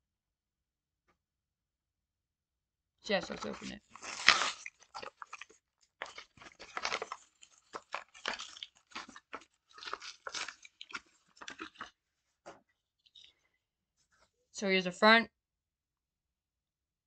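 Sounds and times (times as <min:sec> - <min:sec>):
plastic and cardboard ripping: 0:03.2 - 0:11.9.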